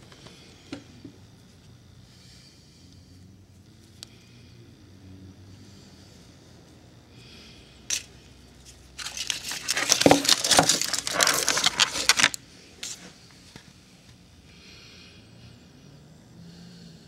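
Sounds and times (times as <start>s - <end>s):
foil and plastic packaging crinkling: 9.0s - 12.4s.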